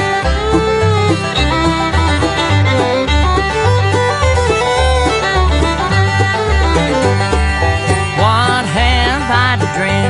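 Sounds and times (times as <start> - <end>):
banjo picking: 0.0 - 10.0
sliding lead melody: 0.0 - 10.0
steady bass line: 0.0 - 10.0.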